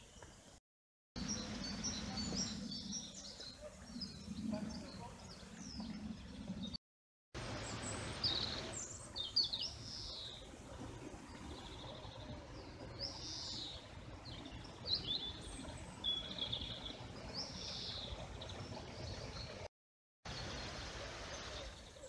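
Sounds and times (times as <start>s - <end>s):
songbird singing trills: 1.2s - 6.8s.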